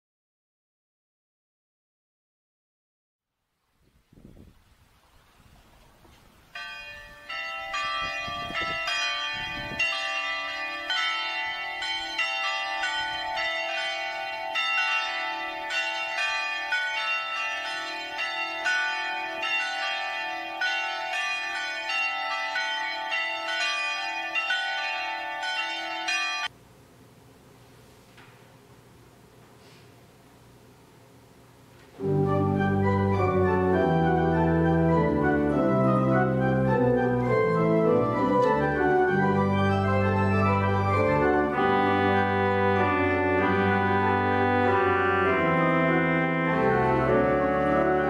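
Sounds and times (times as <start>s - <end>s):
church bells ringing: 6.5s - 26.5s, 32.0s - 48.0s.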